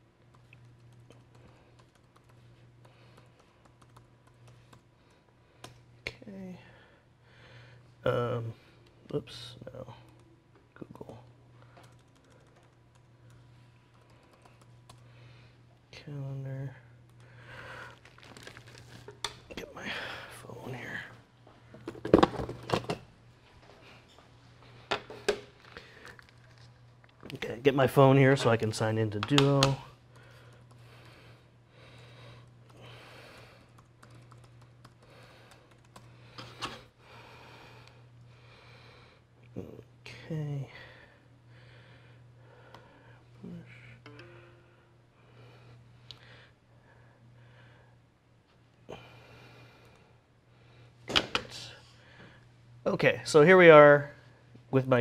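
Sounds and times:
steady low hum: 0:00.0 - 0:55.0
typing on a keyboard: 0:00.3 - 0:04.8, 0:11.8 - 0:15.0, 0:33.4 - 0:36.1.

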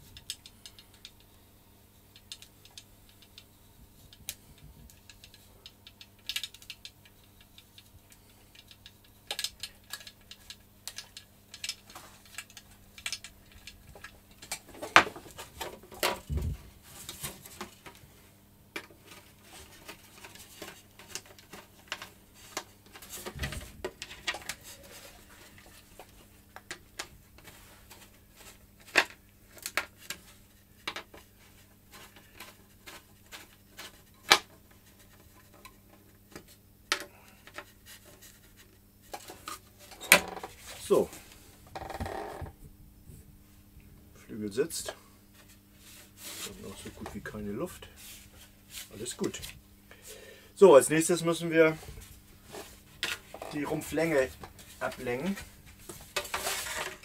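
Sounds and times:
faint steady hum: 0:00.0 - 0:57.0
small tools clicking and tapping: 0:04.1 - 0:15.1.

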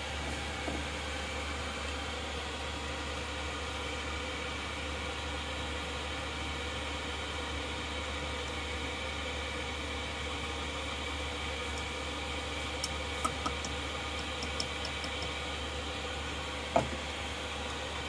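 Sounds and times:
cup knocking on wooden counter: 0:16.7 - 0:17.0.

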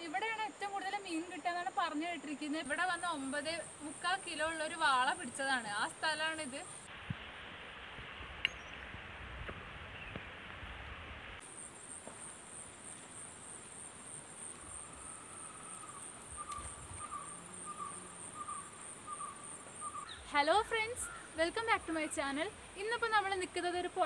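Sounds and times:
insects shrilling: 0:02.6 - 0:06.9, 0:11.4 - 0:23.3.

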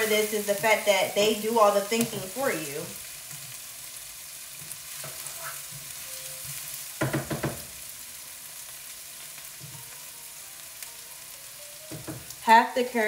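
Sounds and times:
vegetables sizzling in oil: 0:00.0 - 0:13.0
wooden spoon knocking pan: 0:06.5 - 0:07.8, 0:11.9 - 0:12.4.

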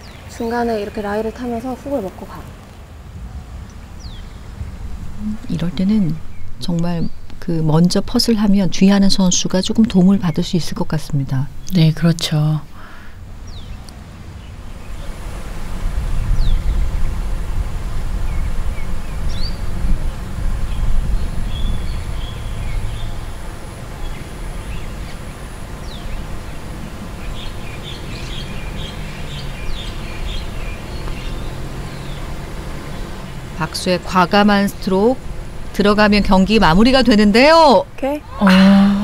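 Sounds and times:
steady low rumble: 0:00.0 - 0:31.0
birds chirping: 0:00.0 - 0:39.0.

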